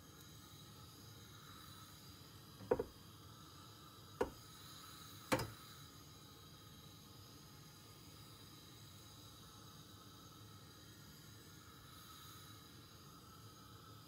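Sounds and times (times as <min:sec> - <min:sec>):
faint steady hiss: 0:00.0 - 0:14.0
metal pan knocking on hob supports: 0:02.6 - 0:02.9.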